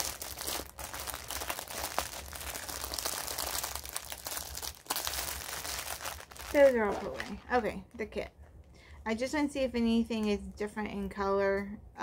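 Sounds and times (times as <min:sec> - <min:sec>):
plastic bags crinkling: 0:00.0 - 0:07.8.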